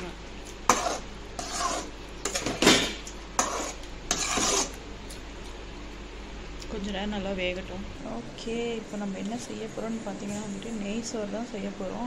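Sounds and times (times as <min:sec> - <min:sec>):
metal spatula scraping a pan: 0:00.7 - 0:04.8.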